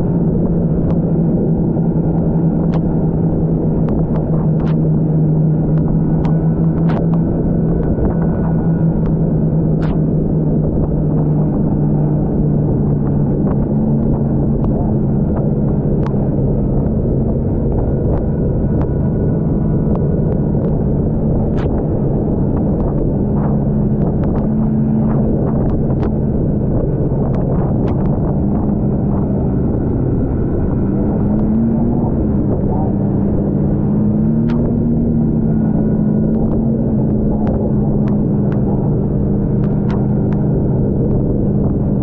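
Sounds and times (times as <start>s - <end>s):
snowmobile engine running: 0.0s - 42.0s
sharp ticks: 5.7s - 10.0s.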